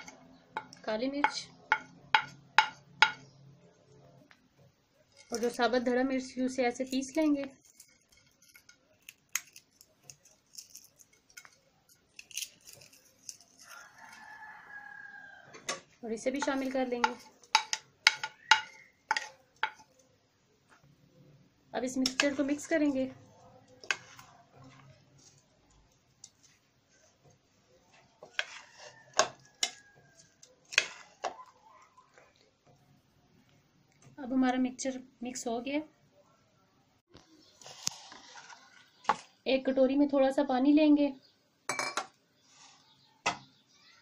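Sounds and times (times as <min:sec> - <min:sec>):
spoon stirring vegetables in a bowl: 0:00.0 - 0:20.9, 0:21.8 - 0:34.8, 0:37.2 - 0:39.7
dried chillies crackling: 0:05.0 - 0:15.4, 0:16.0 - 0:20.8, 0:21.8 - 0:34.1, 0:37.1 - 0:40.1, 0:42.4 - 0:43.1.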